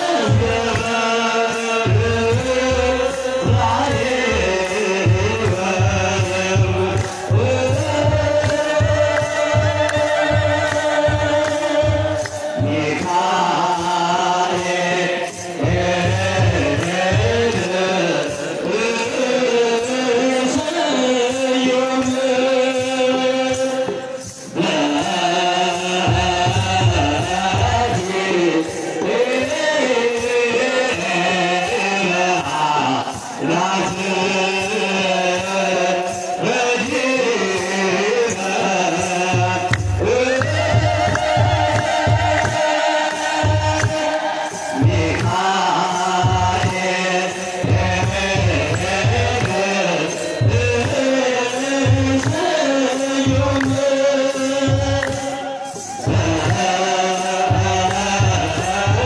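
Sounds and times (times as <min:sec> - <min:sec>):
drums beating: 0:00.0 - 0:59.0
men chanting a hymn: 0:00.0 - 0:59.0.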